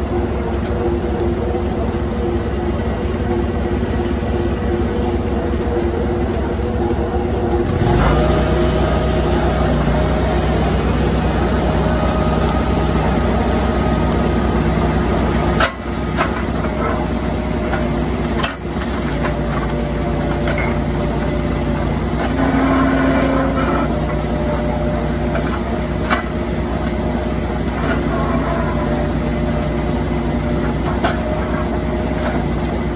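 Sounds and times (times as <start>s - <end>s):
log splitter engine running: 0.0s - 32.9s.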